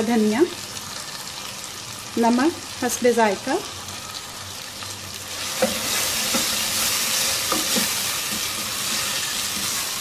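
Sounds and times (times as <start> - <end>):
vegetables sizzling in oil: 0.0 - 10.0
spatula scraping a pot: 5.4 - 10.0.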